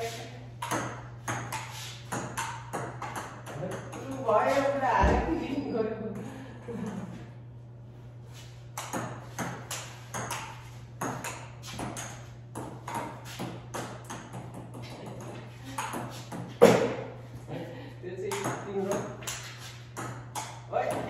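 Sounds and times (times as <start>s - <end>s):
ping-pong ball clicking: 0.6s - 4.3s, 18.3s - 21.0s.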